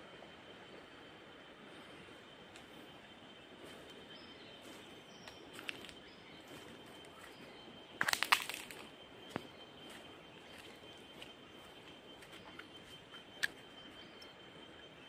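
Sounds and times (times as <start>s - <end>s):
faint high steady tone: 0.0s - 15.0s
sharp crackles and clicks: 8.0s - 8.9s.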